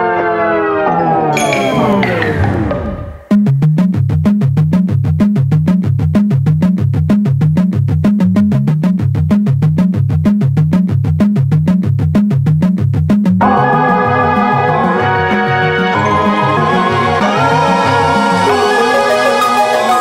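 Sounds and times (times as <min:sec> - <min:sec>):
synthesizer bass line: 0:01.2 - 0:03.4, 0:13.4 - 0:20.0
pulse of short synth notes: 0:01.4 - 0:03.3.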